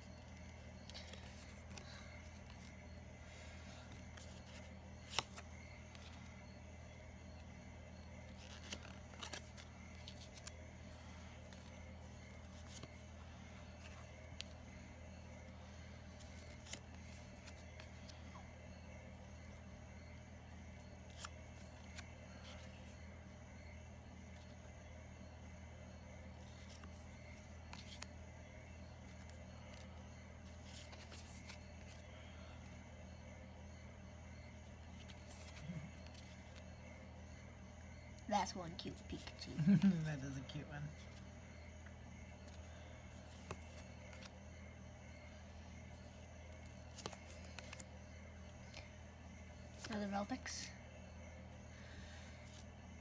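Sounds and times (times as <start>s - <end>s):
low background hum: 0.0s - 53.0s
cards rustling and sliding: 0.1s - 20.2s, 20.8s - 24.6s, 25.9s - 33.2s, 34.2s - 36.9s, 41.0s - 50.6s, 52.2s - 53.0s
trading cards clicking and sliding: 0.2s - 3.0s, 3.8s - 6.5s, 8.1s - 14.8s, 15.8s - 18.2s, 26.4s - 28.2s, 28.8s - 32.8s, 46.5s - 48.0s.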